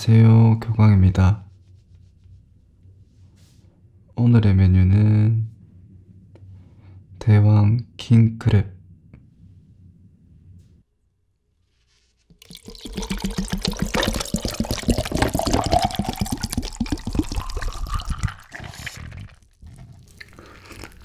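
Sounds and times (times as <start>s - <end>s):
drink glugging into jar of ice: 12.4s - 21.0s.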